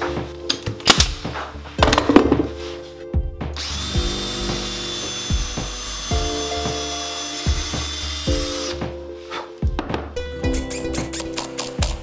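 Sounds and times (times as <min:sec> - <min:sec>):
background music: 0:00.0 - 0:12.0
cordless drill boring into wood: 0:03.6 - 0:08.8.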